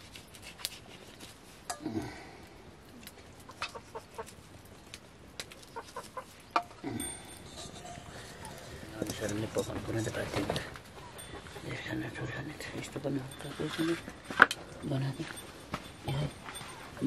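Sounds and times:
hen clucking: 0:03.4 - 0:04.4, 0:05.7 - 0:06.8, 0:10.9 - 0:12.1.

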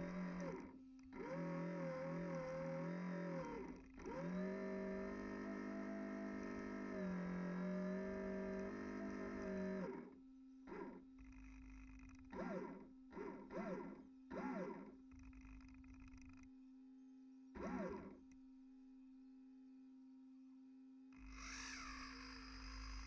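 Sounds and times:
small electric motor spinning: 0:21.2 - 0:23.0.

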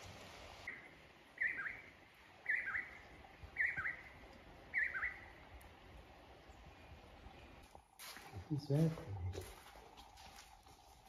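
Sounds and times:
faint steady hiss: 0:00.0 - 0:09.6
songbird calling: 0:00.7 - 0:05.4.

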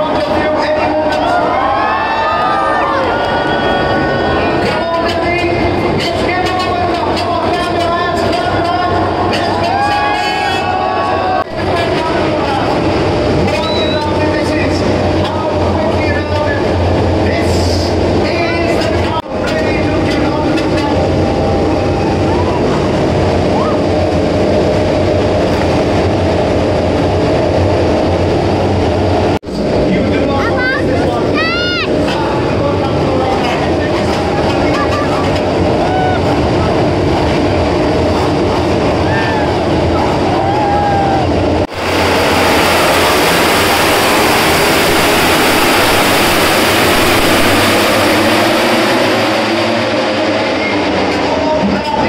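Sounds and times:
racing motorcycles engines roaring: 0:30.9 - 0:52.0.

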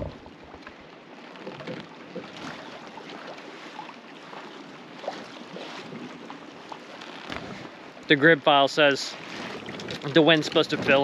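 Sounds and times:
light knocks of boat: 0:00.0 - 0:03.7, 0:09.3 - 0:11.0
water lapping: 0:00.0 - 0:11.0.

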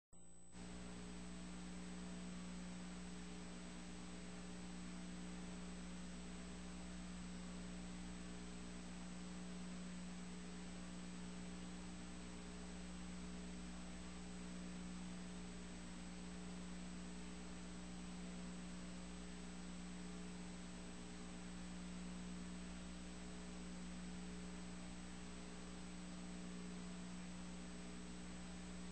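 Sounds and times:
thin high whine: 0:00.2 - 0:13.6
faint electrical hum: 0:00.2 - 0:28.9.

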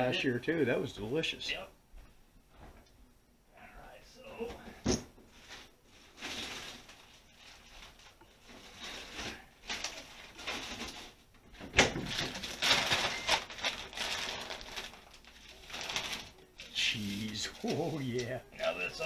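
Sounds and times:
food packaging rustling: 0:05.3 - 0:19.0.

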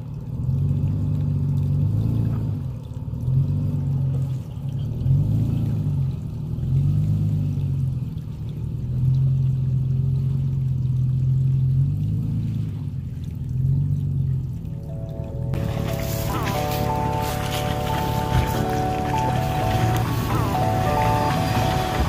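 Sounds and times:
pickup truck engine revving: 0:14.9 - 0:22.0.

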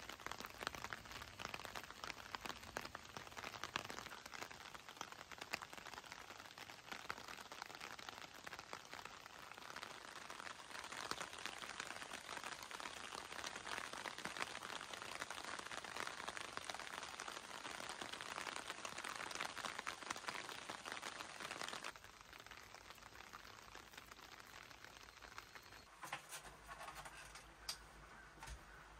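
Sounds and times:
light rain pattering: 0:00.0 - 0:28.9.

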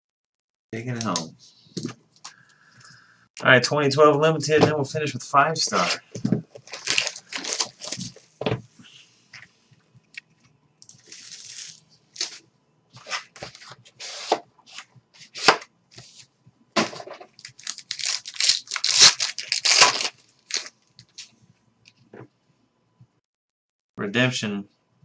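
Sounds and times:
plastic and cardboard crinkling: 0:05.7 - 0:08.3, 0:10.9 - 0:12.4, 0:16.8 - 0:21.4.

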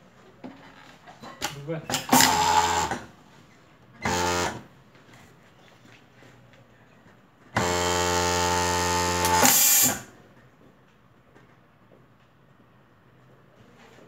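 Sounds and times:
sewing machine running: 0:01.9 - 0:03.0, 0:04.0 - 0:04.6, 0:07.6 - 0:10.1.

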